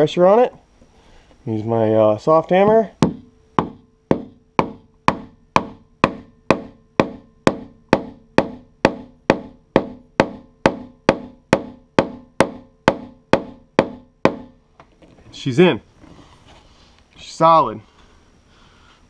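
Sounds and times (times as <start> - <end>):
hammer tapping metal strut: 2.6 - 14.6.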